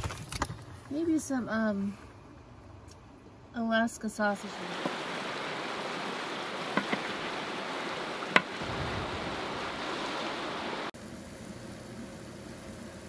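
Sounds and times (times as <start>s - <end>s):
fast river rushing: 4.4s - 10.9s.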